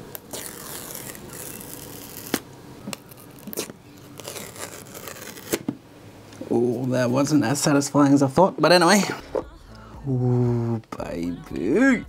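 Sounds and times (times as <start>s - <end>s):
paper strip tearing: 0.1s - 5.6s.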